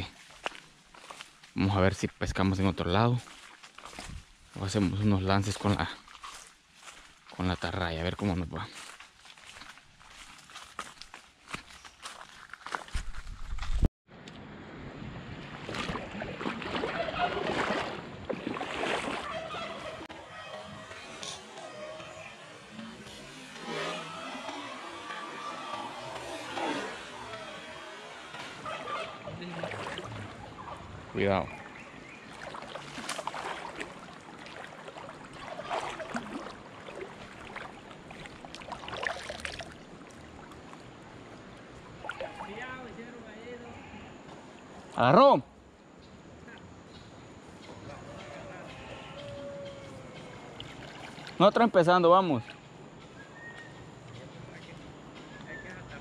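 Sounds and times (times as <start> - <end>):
footsteps: 0.0 - 1.6, 3.2 - 5.1, 5.8 - 7.8, 8.6 - 13.9
river water splashing and rushing: 2.8 - 4.6, 14.5 - 20.1, 23.4 - 43.3, 50.2 - 52.6.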